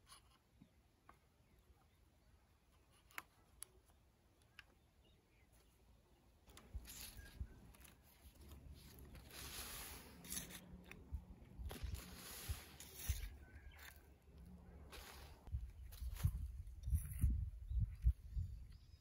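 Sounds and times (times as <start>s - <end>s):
soft clicks: 2.7s - 5.7s
rustling and scraping of plastic: 6.4s - 18.2s.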